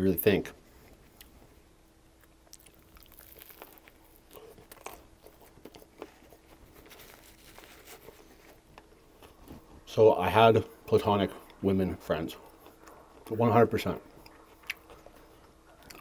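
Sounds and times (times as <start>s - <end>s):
faint steady hum: 0.0s - 16.0s
chewing sandwich: 2.1s - 9.8s, 11.2s - 16.0s.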